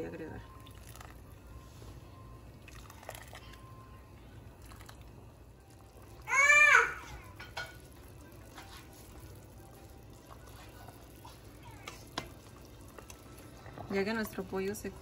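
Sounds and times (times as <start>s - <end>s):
pot simmering: 0.0s - 15.0s.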